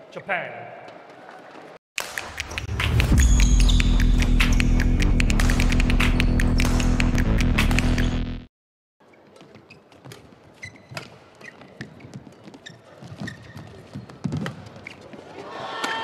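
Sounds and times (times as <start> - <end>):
low arena background: 0.0 - 16.0
electronic music sting: 2.5 - 8.5
shoes squeaking on court: 9.0 - 15.4.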